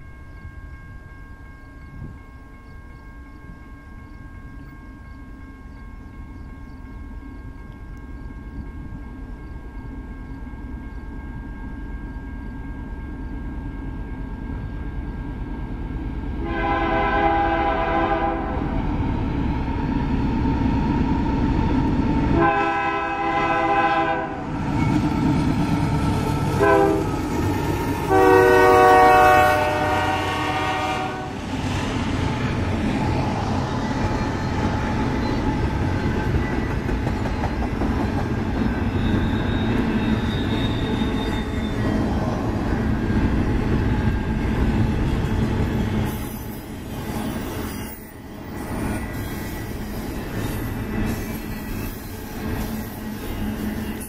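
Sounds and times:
train air horn: 16.4s - 18.8s, 22.4s - 24.5s, 26.6s - 27.1s, 28.1s - 31.4s.

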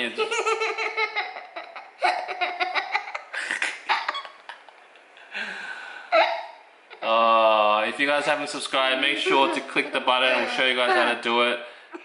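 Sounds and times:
boy laughing: 0.0s - 5.0s, 6.1s - 7.2s, 9.2s - 11.2s.

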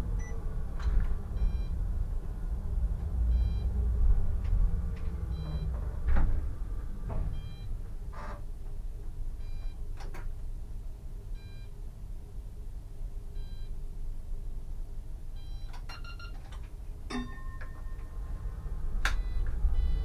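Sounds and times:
tram equipment humming: 0.0s - 20.0s
rapid beeps: 19.2s - 20.0s
short electronic beep: 19.2s - 20.0s.

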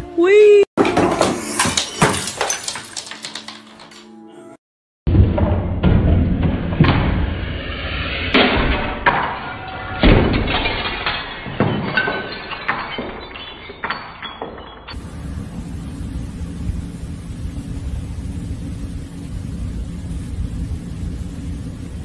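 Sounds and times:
objects crashing on floor: 0.8s - 4.0s, 8.3s - 15.0s.

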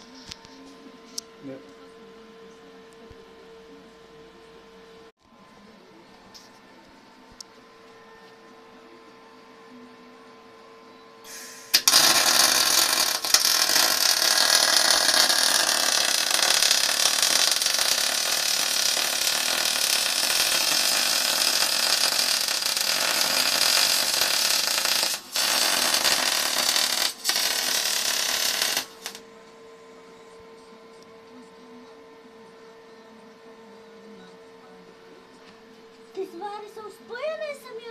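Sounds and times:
welding arc crackling: 11.3s - 29.2s.

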